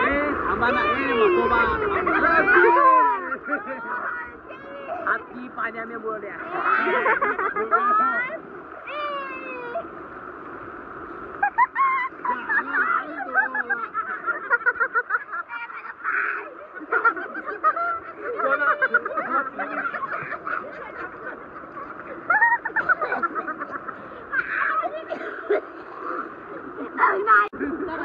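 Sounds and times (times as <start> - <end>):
people shouting and squealing: 0.0 - 5.1, 24.2 - 25.1
rushing water: 0.0 - 28.0.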